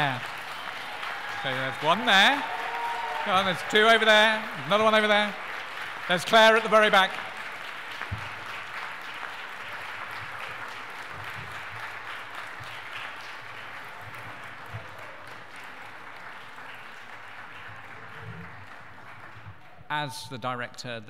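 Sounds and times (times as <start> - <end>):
audience applauding: 0.0 - 19.8.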